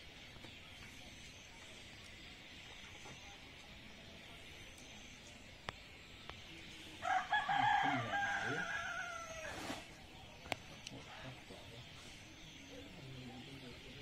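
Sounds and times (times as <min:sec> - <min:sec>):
rooster crowing: 0:07.0 - 0:09.8.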